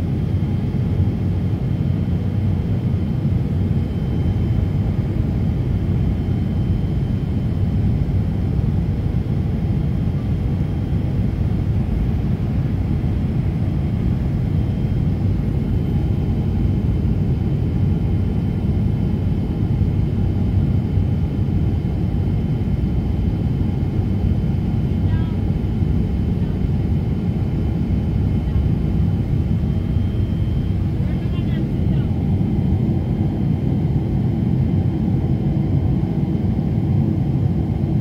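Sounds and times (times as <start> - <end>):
jet engine cabin rumble: 0.0 - 38.0
faint high whine: 27.5 - 32.6.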